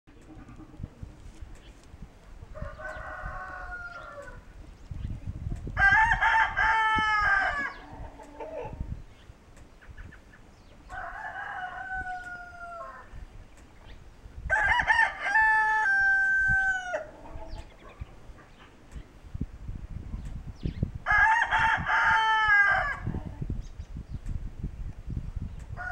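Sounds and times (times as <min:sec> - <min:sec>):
faint distant rooster crowing: 0:02.4 - 0:04.6, 0:05.6 - 0:09.0, 0:10.7 - 0:13.4, 0:14.4 - 0:18.7, 0:21.0 - 0:23.5, 0:25.7 - 0:25.9
rooster crowing: 0:02.5 - 0:04.5, 0:05.8 - 0:07.9, 0:10.9 - 0:13.2, 0:14.5 - 0:17.3, 0:21.1 - 0:23.2.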